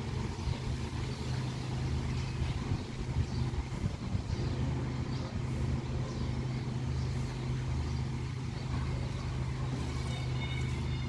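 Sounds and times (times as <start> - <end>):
wind rumble on microphone: 0.0 - 6.5
wind rustling tree leaves: 0.0 - 11.0.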